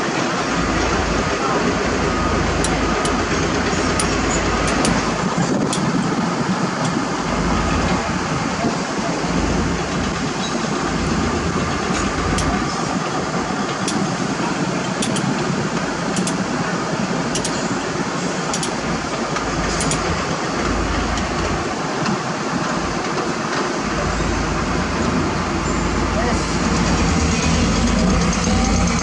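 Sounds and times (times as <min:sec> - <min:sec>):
diesel truck engine running: 0:00.0 - 0:29.0
sharp light clicks: 0:17.4 - 0:17.6.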